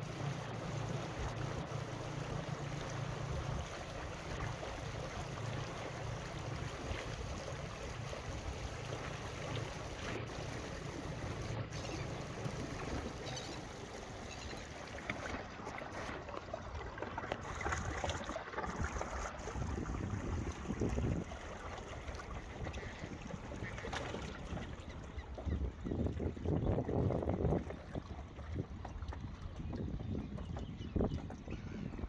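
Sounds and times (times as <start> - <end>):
small waves washing: 0.0 - 32.0
wind rumbling on microphone: 17.4 - 32.0.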